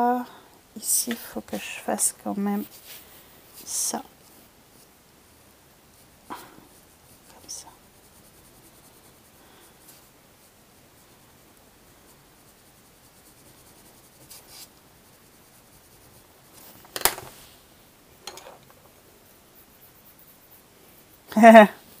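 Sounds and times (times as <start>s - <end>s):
pencil scratching on paper: 5.9s - 11.3s, 11.9s - 16.8s, 18.3s - 22.0s
pencil set down with click: 16.9s - 17.3s.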